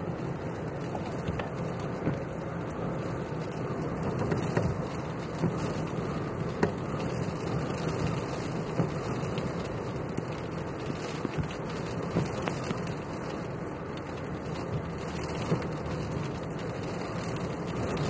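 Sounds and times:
car cabin rumble: 0.0s - 13.2s.

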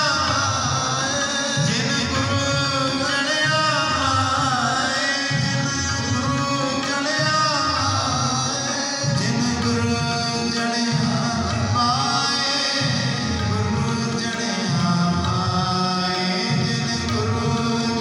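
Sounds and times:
harmonium: 0.0s - 18.0s
man singing a devotional hymn: 0.0s - 18.0s.

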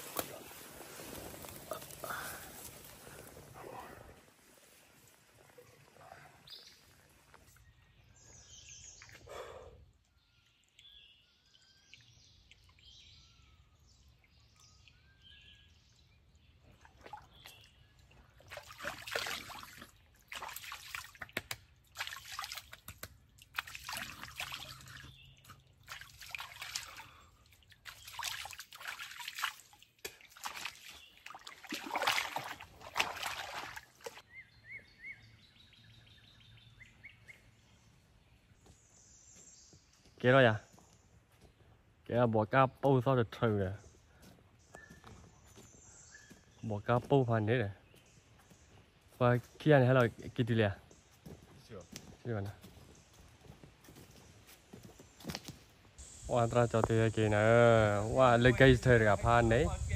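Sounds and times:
hands splashing creek water: 0.0s - 7.7s, 16.2s - 34.3s
faint birdsong: 0.0s - 21.0s, 23.6s - 59.9s.

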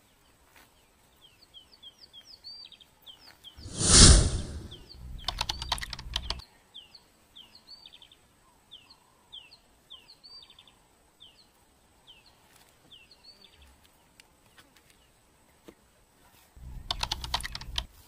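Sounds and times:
quiet outdoor ambience: 0.0s - 18.0s
keyboard typing clicks: 5.2s - 6.4s, 16.9s - 17.9s.

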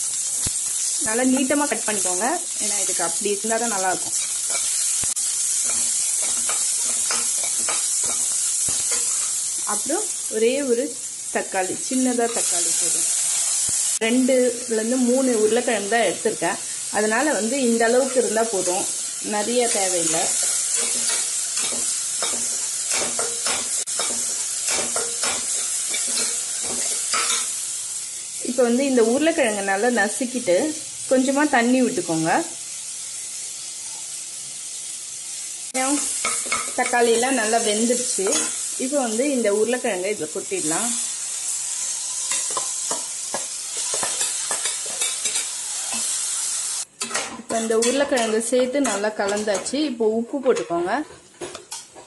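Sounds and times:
onions sizzling in oil: 0.0s - 50.1s
spatula scraping pan: 4.0s - 9.4s.

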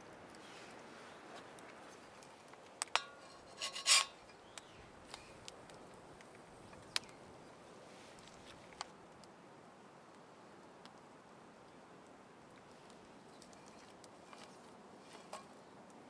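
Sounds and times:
wood fire crackling: 0.0s - 16.0s
metal spatula scraping skillet: 3.0s - 4.4s.

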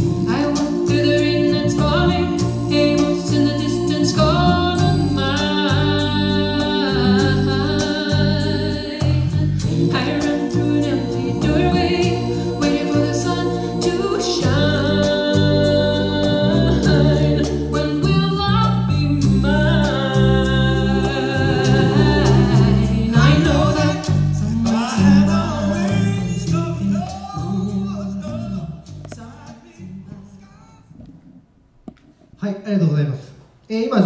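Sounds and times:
woman singing lead vocal: 0.0s - 26.6s.

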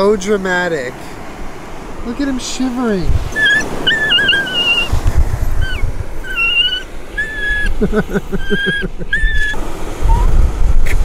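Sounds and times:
wind on microphone: 2.8s - 11.0s
dog whimpering: 3.3s - 10.3s
dog whining: 3.3s - 10.3s.

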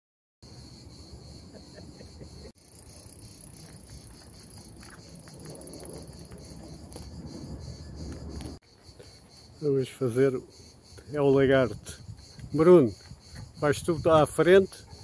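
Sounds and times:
insects chirring: 0.4s - 15.0s.

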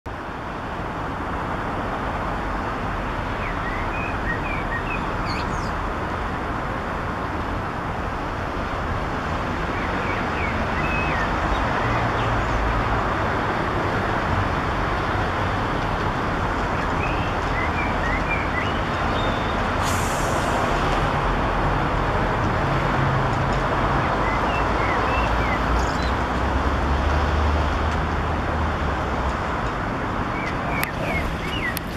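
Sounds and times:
road traffic noise: 0.1s - 31.9s
blackbird singing: 3.4s - 5.8s, 9.8s - 12.6s, 16.8s - 19.6s, 24.1s - 26.2s, 30.3s - 31.9s
brief hiss: 19.8s - 20.7s.

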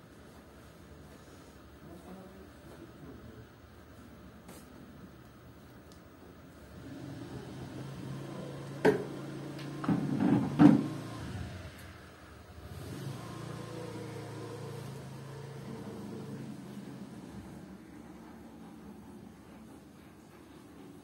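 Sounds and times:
low motor hum: 6.8s - 21.0s.

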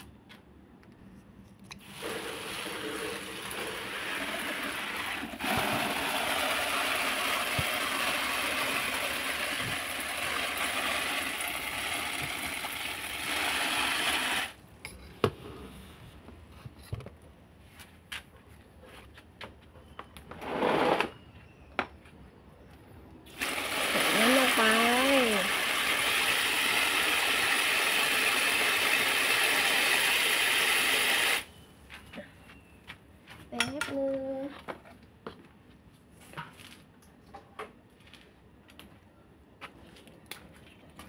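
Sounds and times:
water splashing onto leaves and soil: 23.3s - 31.2s.

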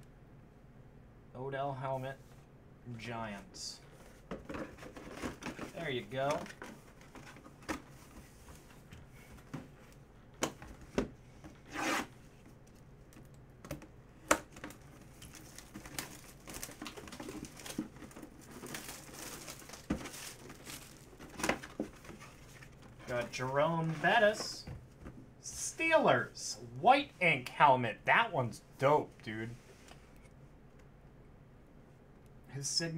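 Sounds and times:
plastic shrink wrap tearing: 15.3s - 21.3s.

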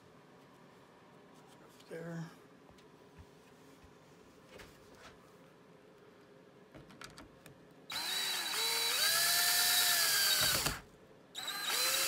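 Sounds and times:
power drill whining: 7.9s - 10.8s, 11.4s - 12.0s.

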